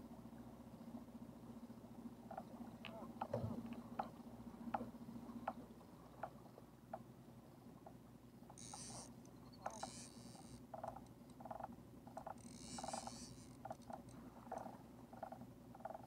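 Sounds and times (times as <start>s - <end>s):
squeaky ticks: 8.5s - 16.0s
electric motor humming: 8.6s - 9.1s, 12.4s - 13.7s.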